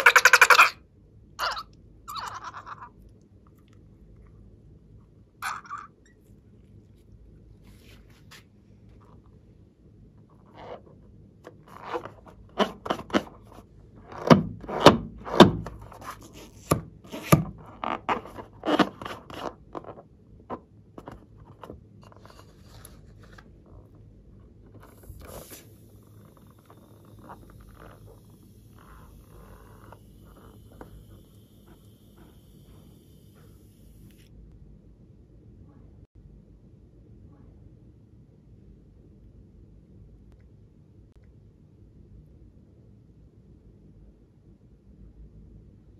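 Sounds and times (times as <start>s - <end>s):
rubber balloon squeaking: 0.0s - 0.8s, 1.4s - 2.9s, 11.5s - 20.0s, 24.8s - 33.5s.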